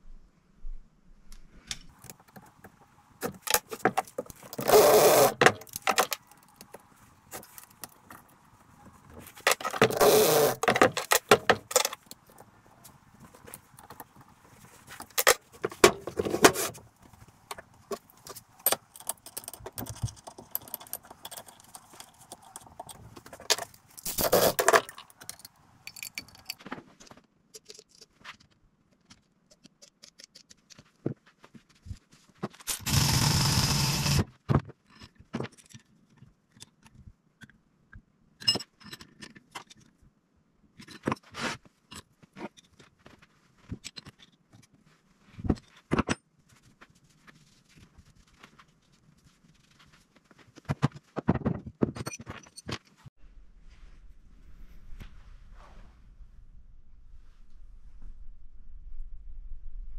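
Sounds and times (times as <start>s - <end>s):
metal tools clinking and scraping: 17.9s - 26.6s.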